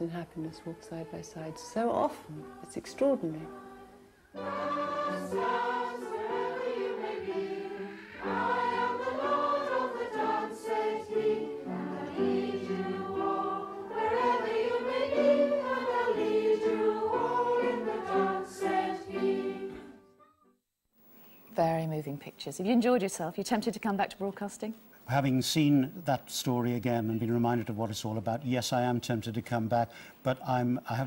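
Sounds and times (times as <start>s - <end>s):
group of people singing: 0.4s - 20.0s.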